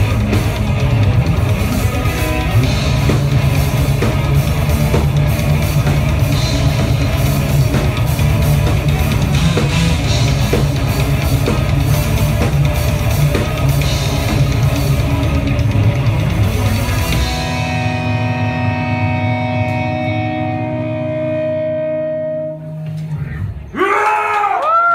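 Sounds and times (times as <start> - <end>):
pounding drums: 0.0 - 17.8
distorted guitars: 0.0 - 23.7.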